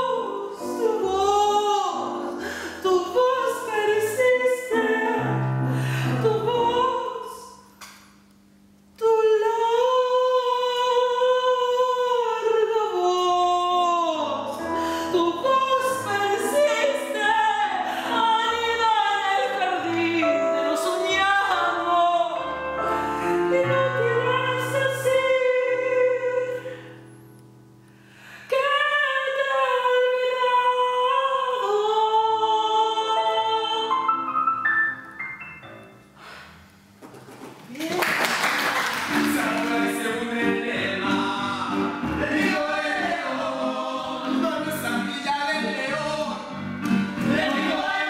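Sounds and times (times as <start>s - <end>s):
woman singing: 0.0s - 7.6s, 9.0s - 26.7s, 28.5s - 34.2s.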